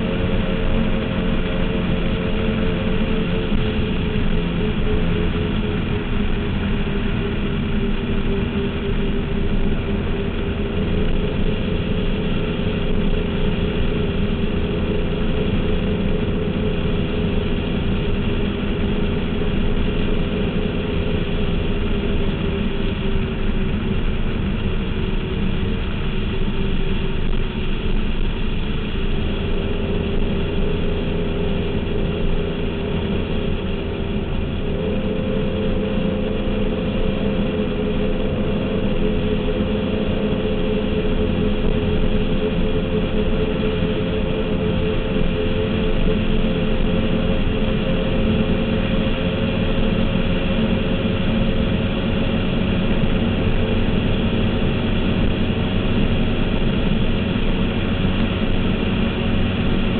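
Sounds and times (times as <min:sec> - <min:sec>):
powerboat engine droning: 0:00.0 - 0:59.9.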